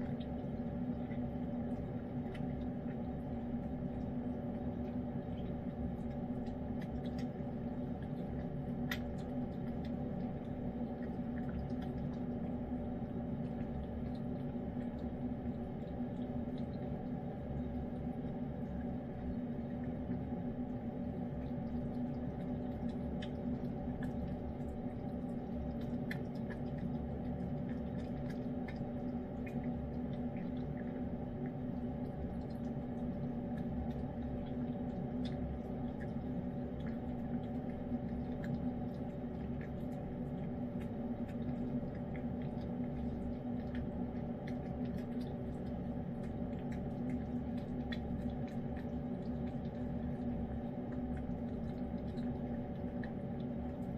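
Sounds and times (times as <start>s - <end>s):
cat licking and chewing: 0.0s - 53.9s
steady low hum: 0.0s - 53.9s.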